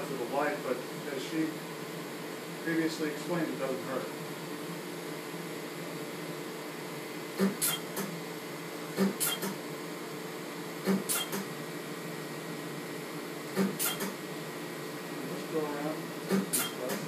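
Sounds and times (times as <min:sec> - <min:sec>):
machine hum: 0:00.0 - 0:17.0
hissing cooling spray with click: 0:07.4 - 0:08.2, 0:09.0 - 0:09.6, 0:10.8 - 0:11.5.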